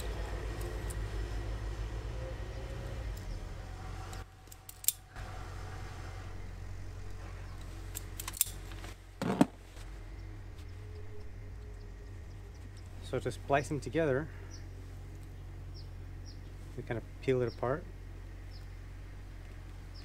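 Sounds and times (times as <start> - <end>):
low hum: 0.0 - 20.0
wire strippers snapping: 4.1 - 5.1, 7.6 - 9.6.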